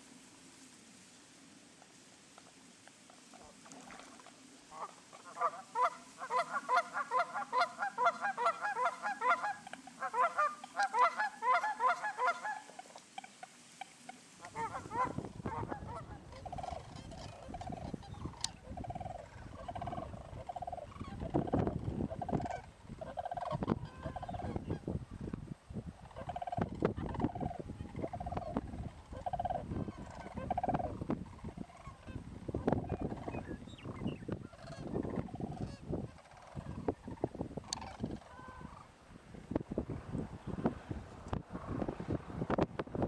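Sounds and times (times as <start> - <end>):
birds honking: 4.7 - 24.8, 26.1 - 32.2, 32.8 - 38.9
wind rumble on microphone: 14.5 - 43.0.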